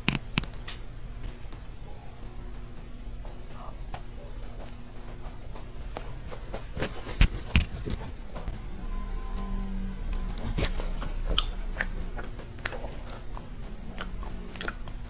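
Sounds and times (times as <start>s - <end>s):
faint low hum: 0.0s - 15.0s
chewing with small crackles: 10.2s - 15.0s.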